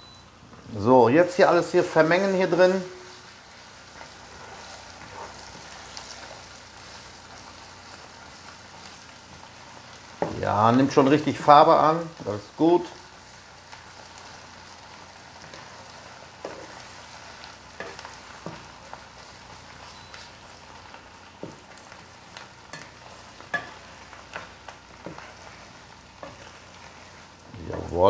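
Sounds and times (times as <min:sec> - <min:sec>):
faint sizzle: 0:00.0 - 0:28.0
spatula scraping and tapping a pan: 0:16.4 - 0:16.8, 0:17.8 - 0:19.2, 0:21.4 - 0:28.0.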